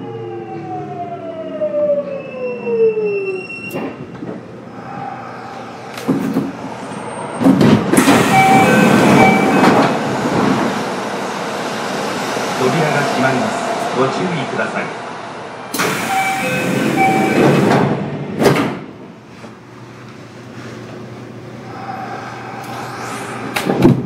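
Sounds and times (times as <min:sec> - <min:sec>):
train brake and wheel noise: 0:05.9 - 0:10.8, 0:15.7 - 0:18.0.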